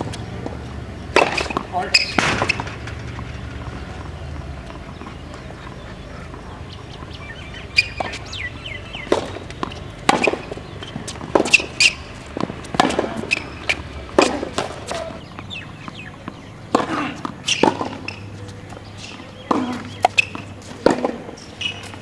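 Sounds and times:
tennis ball pops: 1.1 - 3.2
shoe squeaks: 1.2 - 12.2, 13.1 - 16.5, 17.1 - 22.0.

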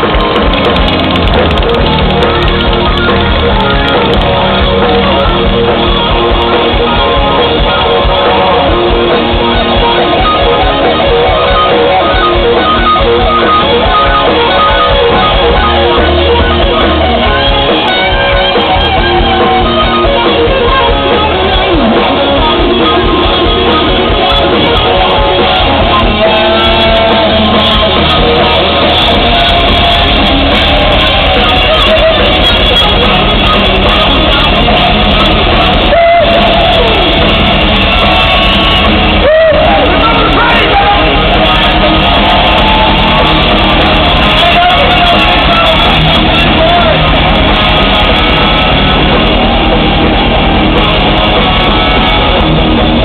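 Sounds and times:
electric guitar: 0.0 - 53.0
live rock band playing: 0.0 - 53.0.

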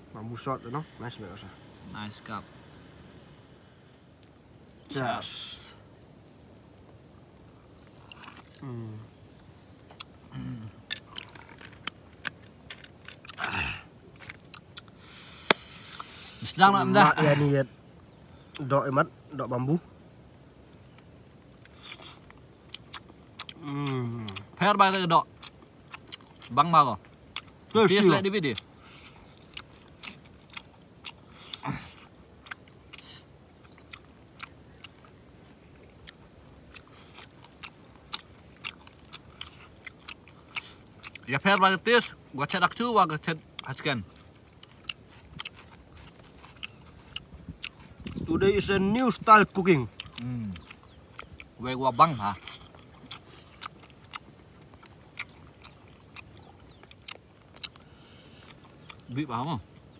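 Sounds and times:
people chewing and crunching: 6.7 - 9.2, 9.8 - 19.8, 20.8 - 59.9
man saying ahh: 8.6 - 9.1
wet mouth clicks and smacks: 52.5 - 59.1
breathy exhale: 57.8 - 58.5.

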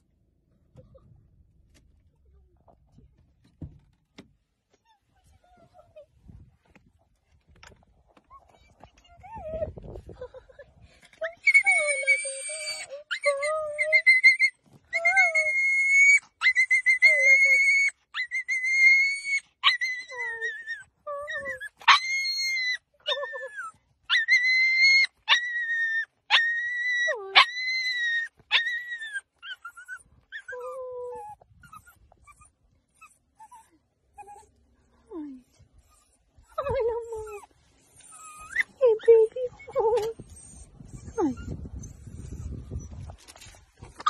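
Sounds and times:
dog whimpering: 11.3 - 44.0
small dog yelping: 11.4 - 34.5, 35.8 - 44.0.

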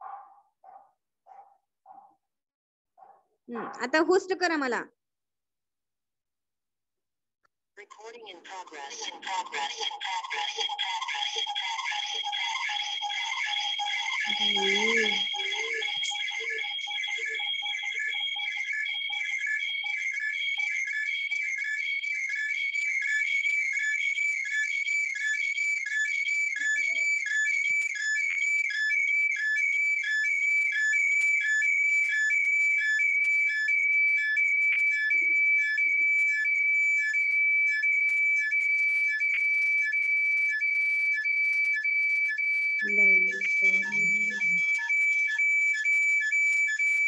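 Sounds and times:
rapid pulsing beep: 8.6 - 47.0
high-pitched feedback whistle: 14.2 - 17.3, 26.6 - 28.3.

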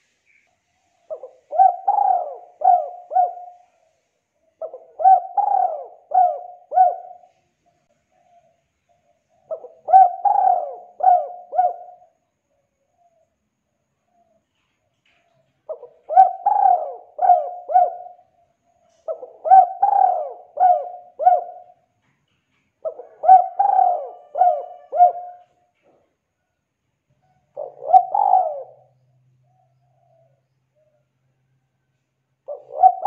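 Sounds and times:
dove cooing: 1.0 - 12.2, 15.6 - 21.9, 22.8 - 25.7, 27.2 - 31.0, 32.4 - 33.0.

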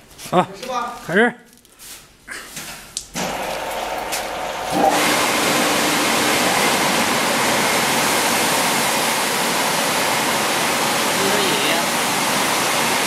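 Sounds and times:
blowers rushing air: 3.2 - 13.0.

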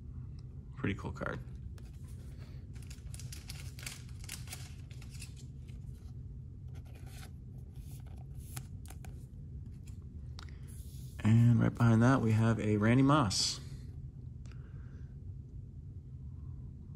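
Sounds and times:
steady low hum: 0.0 - 16.9
plastic sleeve rustling and crinkling: 1.8 - 6.1.

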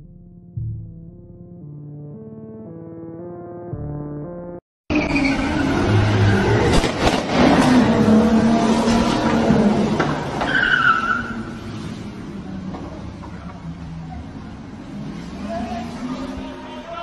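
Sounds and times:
engine revving hard: 5.4 - 10.4
car crashes: 6.5 - 11.5
tyres squealing: 10.2 - 11.6.

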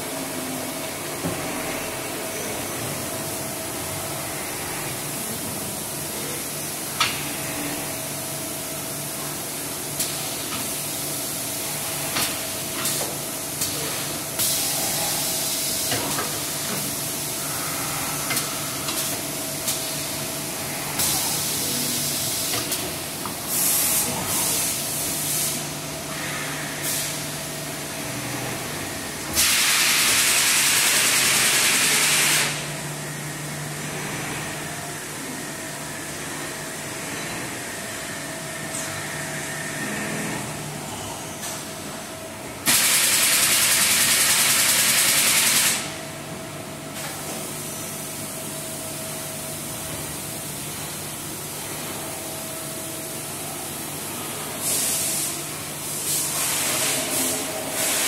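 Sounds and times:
hiss of air or spray: 23.5 - 25.6, 26.8 - 27.2, 29.3 - 32.7, 42.7 - 45.9, 54.6 - 58.0.

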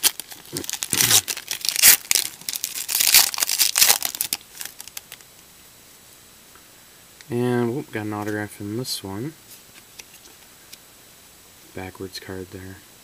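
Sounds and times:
foil wrapper tearing and crinkling: 0.0 - 5.2.

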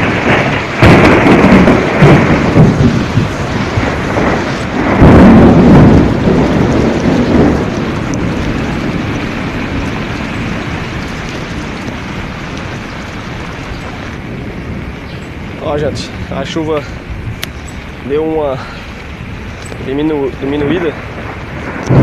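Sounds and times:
loud low rumble: 0.0 - 17.4
floodwater rushing: 0.0 - 22.0
heavy rain: 0.0 - 22.0.

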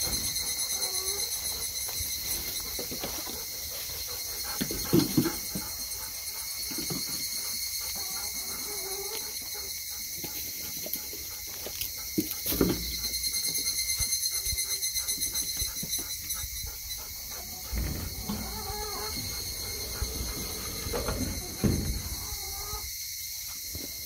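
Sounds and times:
chickens clucking: 0.1 - 9.7, 14.3 - 22.9.

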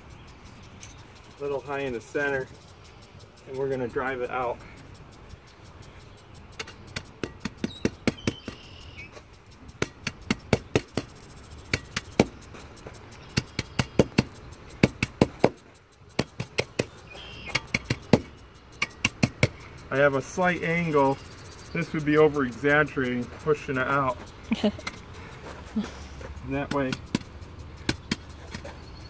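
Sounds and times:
steel hand tamper striking: 6.5 - 8.7, 9.5 - 12.5.

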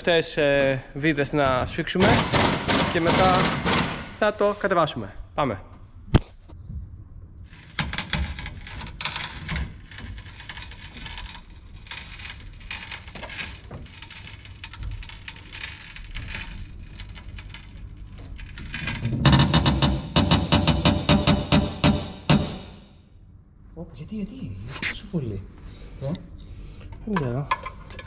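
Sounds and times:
clicks creaks and rattles: 7.6 - 21.2.

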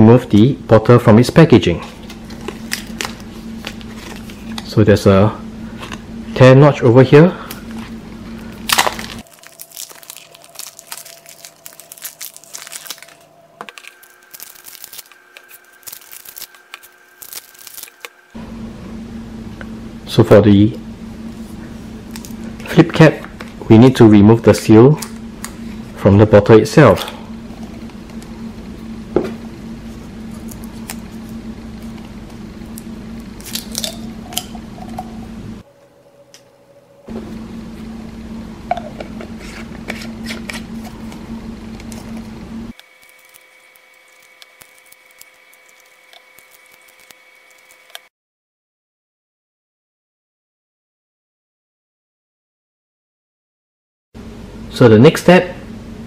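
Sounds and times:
steady low hum: 0.0 - 48.0, 54.2 - 56.0
plastic crinkling: 8.6 - 18.1, 42.8 - 48.1
plastic bag ripping: 8.6 - 18.2, 33.4 - 34.1, 42.8 - 48.0
plastic cap and foil seal peeled: 8.7 - 18.1.

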